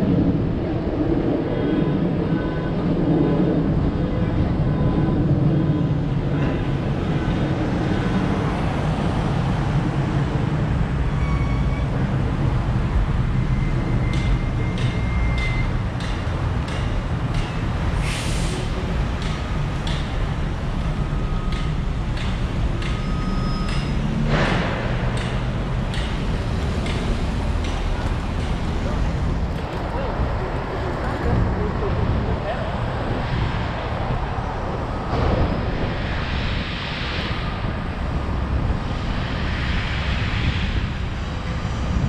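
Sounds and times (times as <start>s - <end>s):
wind on microphone: 0.0s - 14.8s, 24.6s - 42.0s
street traffic rumble: 0.0s - 42.0s.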